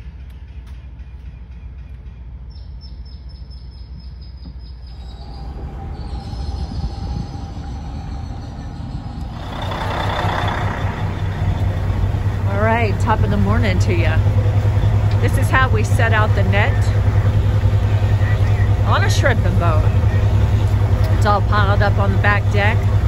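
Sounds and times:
diesel engine rumbling: 3.9s - 23.0s
broad rushing noise: 5.0s - 23.0s.

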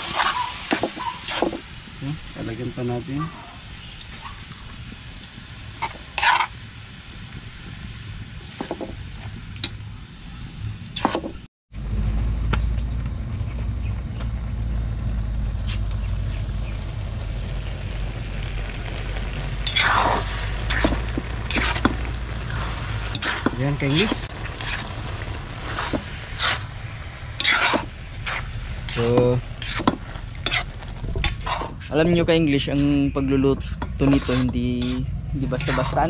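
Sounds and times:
metal spatula scraping a wok: 0.0s - 1.6s, 5.8s - 6.6s, 19.6s - 25.0s, 25.6s - 32.0s, 32.7s - 36.0s
low rumble with faint sizzle: 0.0s - 36.0s.

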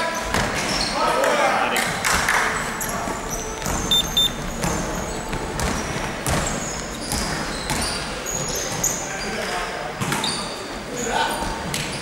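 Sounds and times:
basketballs bouncing on indoor court: 1.8s - 9.0s
short high squeaks: 2.6s - 5.2s.

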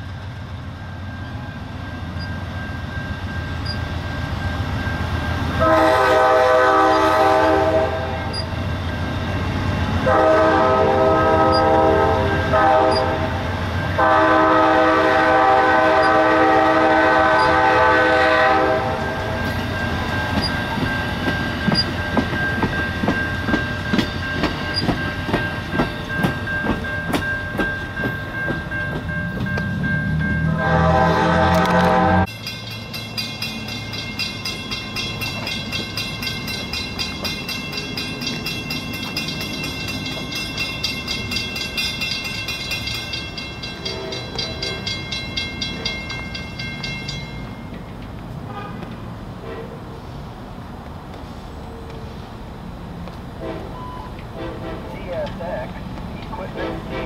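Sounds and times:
train horn blasts: 5.6s - 8.4s, 10.0s - 13.4s, 14.0s - 19.2s, 30.4s - 32.3s, 43.8s - 44.9s, 48.4s - 49.8s, 53.4s - 55.0s, 56.5s - 57.0s
train wheels clacking over rail joints: 19.4s - 29.9s.

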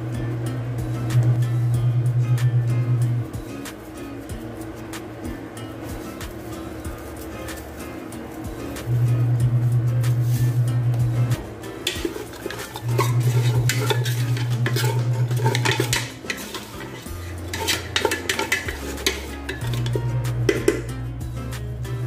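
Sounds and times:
background music with bass: 0.0s - 22.0s
wooden spoon stirring in a metal pot: 11.7s - 20.9s.

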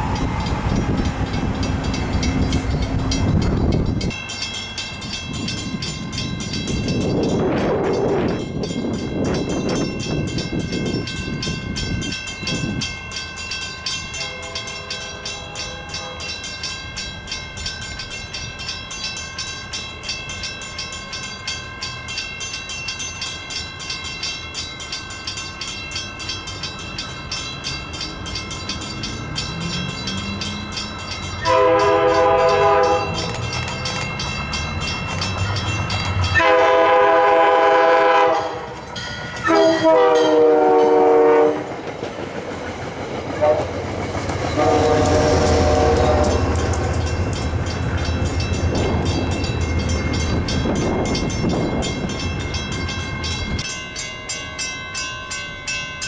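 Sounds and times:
diesel train engine rumble: 0.0s - 56.0s
rapid ringing bell: 0.2s - 36.5s, 38.8s - 41.0s, 46.2s - 56.0s
locomotive horn blasts: 14.2s - 16.4s, 31.4s - 33.3s, 36.4s - 38.7s, 39.4s - 41.7s, 43.4s - 43.7s, 44.6s - 46.6s.

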